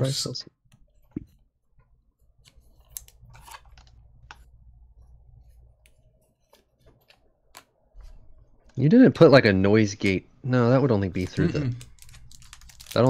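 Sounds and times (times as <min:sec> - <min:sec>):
low steady hum: 0:00.0 - 0:13.0
trading cards clicking and rustling: 0:11.1 - 0:13.0.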